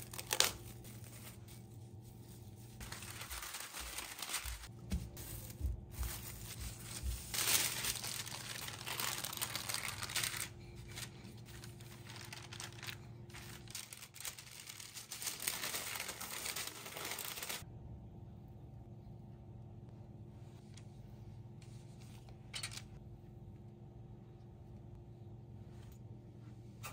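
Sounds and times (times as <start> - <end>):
plastic wrap and paper crinkling: 0.0 - 17.6.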